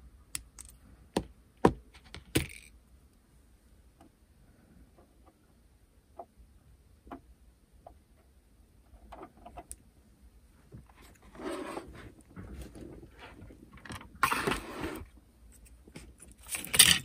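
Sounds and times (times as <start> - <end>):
clicks of plastic model parts: 0.3 - 0.8
rustling scrape: 10.9 - 13.6, 14.2 - 15.7.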